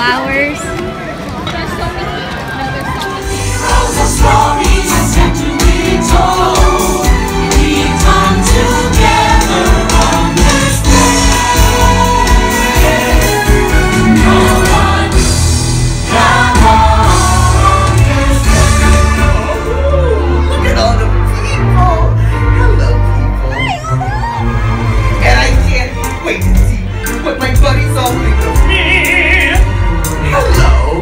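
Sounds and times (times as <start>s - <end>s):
choir singing over band: 3.3s - 20.4s.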